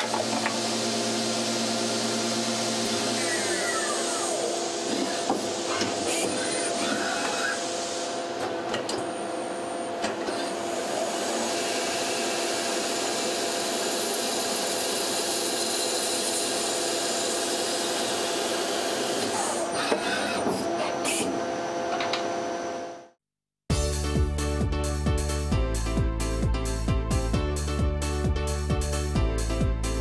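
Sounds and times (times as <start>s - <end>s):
machine motors humming: 0.0s - 11.1s
metal cutting hiss: 1.0s - 8.3s.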